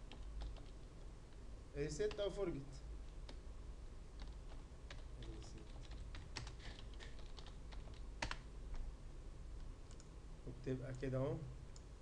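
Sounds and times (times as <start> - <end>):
keyboard typing: 0.0 - 0.9, 4.2 - 8.5, 9.8 - 10.1.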